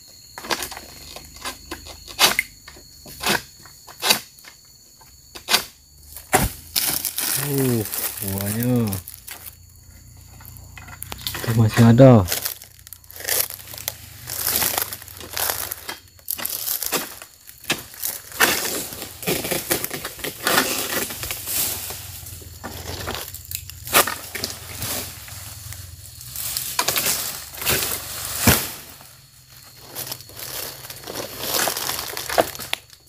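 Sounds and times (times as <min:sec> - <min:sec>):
dry palm fronds rustling: 0:06.1 - 0:09.6, 0:10.4 - 0:33.0.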